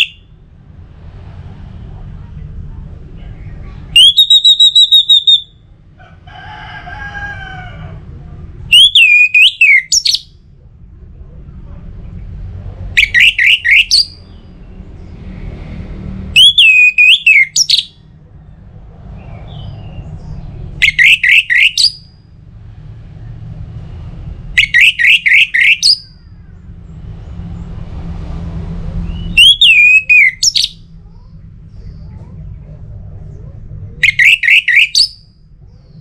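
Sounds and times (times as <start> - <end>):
thrush singing whistled phrases: 0.0 - 0.3, 3.9 - 5.6, 8.7 - 10.3, 13.0 - 14.3, 16.3 - 18.0, 20.8 - 22.2, 24.6 - 26.2, 29.0 - 30.8, 34.0 - 35.4
low background rumble: 0.0 - 34.2, 35.1 - 36.0.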